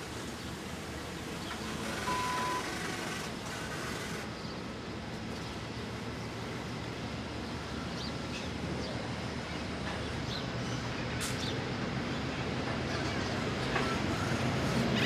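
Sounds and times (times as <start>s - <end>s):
train carriages rumbling past: 0.0s - 15.0s
short beep: 2.1s - 2.7s.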